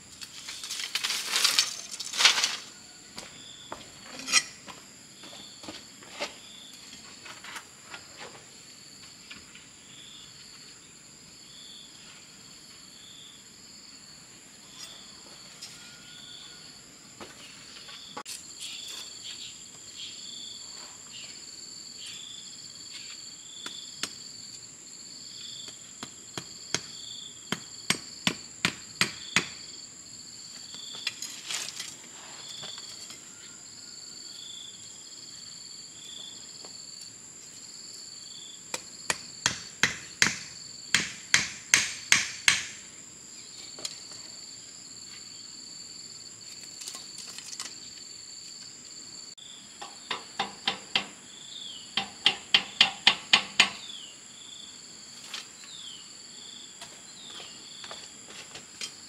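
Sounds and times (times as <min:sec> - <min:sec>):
insects chirping: 0:00.0 - 0:59.0
rapid sharp hammer strikes: 0:27.5 - 0:29.6, 0:39.1 - 0:42.8.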